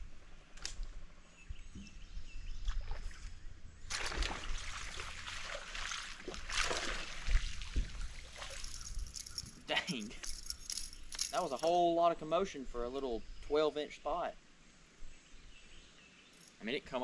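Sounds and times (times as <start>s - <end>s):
fish splashing at water surface: 3.9s - 9.0s.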